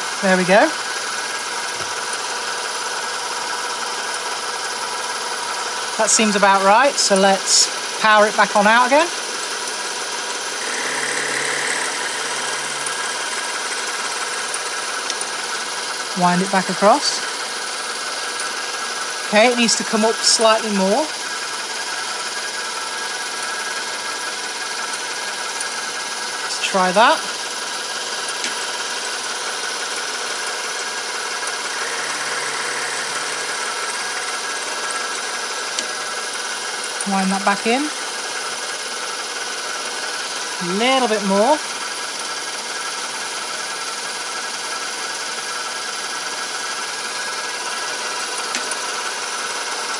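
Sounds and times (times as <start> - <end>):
metal lathe humming: 9.1 - 19.6, 24.9 - 37.0.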